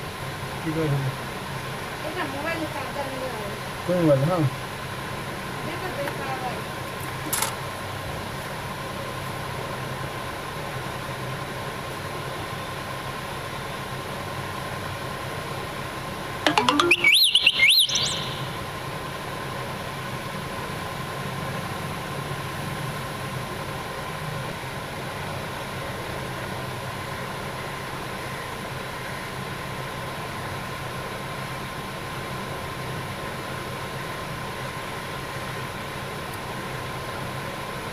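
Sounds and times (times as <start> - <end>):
loud warbling chirp: 16.5 - 18.6
thin steady tone: 16.5 - 18.6.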